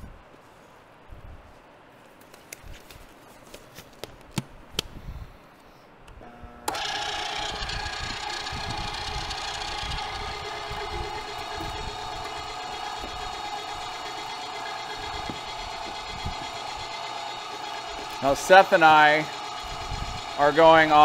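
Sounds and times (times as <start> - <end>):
electric meat grinder whining: 6.5 - 21.0.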